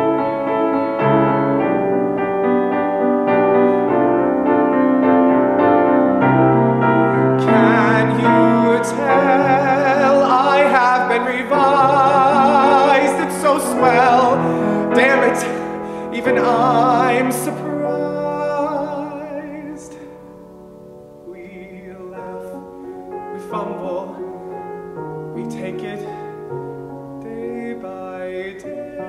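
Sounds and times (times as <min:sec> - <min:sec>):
grand piano accompaniment: 0:00.0 - 0:29.0
man singing with vibrato: 0:06.6 - 0:20.5, 0:21.1 - 0:29.0.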